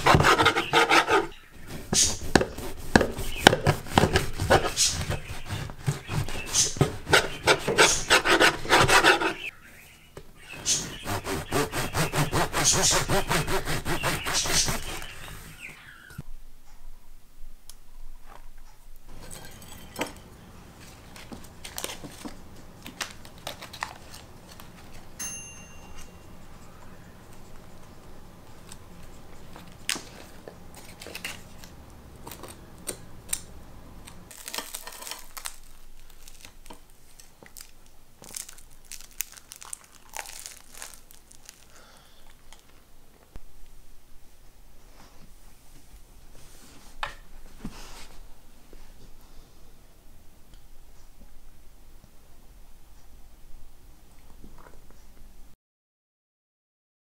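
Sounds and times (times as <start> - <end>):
bread crinkling and tearing: 20.8 - 25.1, 29.5 - 32.6, 34.3 - 42.8.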